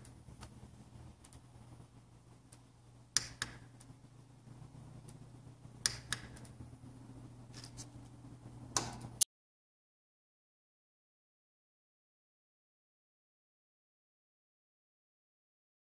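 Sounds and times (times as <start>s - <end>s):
low steady hum: 0.0s - 9.2s
switches clicking: 3.2s - 4.0s, 5.8s - 6.6s.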